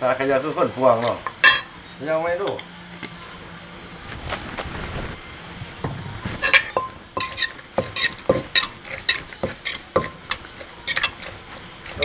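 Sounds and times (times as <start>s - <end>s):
metal spoon clinking: 1.2s - 1.7s, 6.4s - 11.3s
wooden pestle pounding in mortar: 7.2s - 10.4s.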